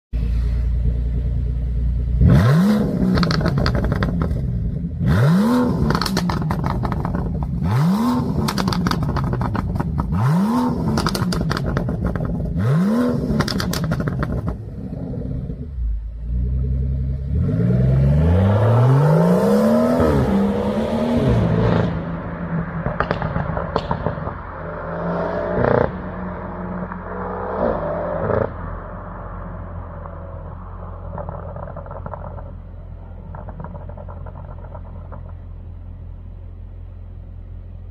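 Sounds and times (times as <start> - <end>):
car engine revving: 0.2 - 36.0
car pulling away: 0.2 - 37.9
exhaust crackles and pops: 3.0 - 4.6, 5.8 - 14.8, 22.8 - 24.6, 29.8 - 36.2.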